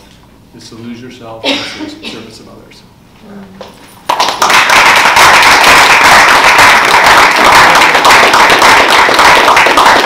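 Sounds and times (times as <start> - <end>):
people clapping: 4.0 - 10.0.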